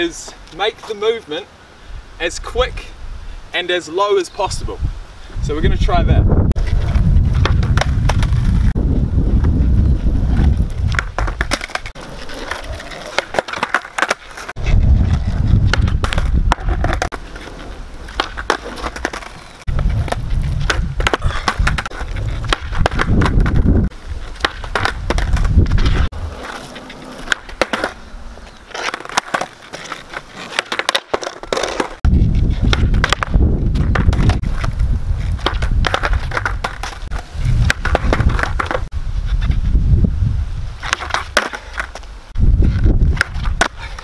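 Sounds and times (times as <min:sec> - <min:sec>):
skateboard wheels on asphalt: 0:00.0 - 0:44.0
skateboard clacking on ground: 0:06.6 - 0:08.7, 0:10.3 - 0:23.6, 0:24.2 - 0:38.9, 0:40.8 - 0:42.1, 0:42.8 - 0:44.0.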